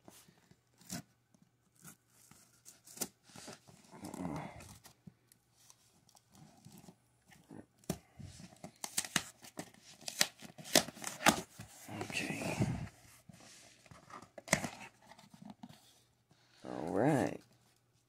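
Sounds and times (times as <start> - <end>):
tape being peeled: 8.8 - 11.5.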